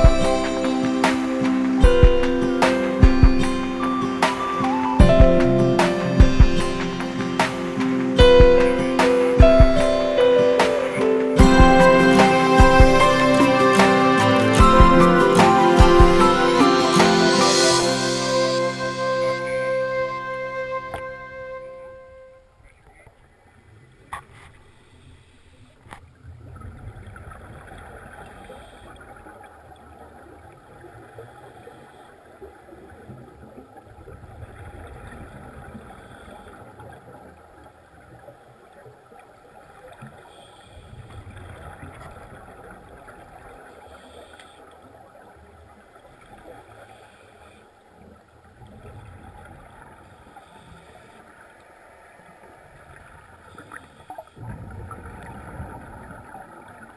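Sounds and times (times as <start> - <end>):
exhaled bubbles rumbling underwater: 54.4 - 56.9.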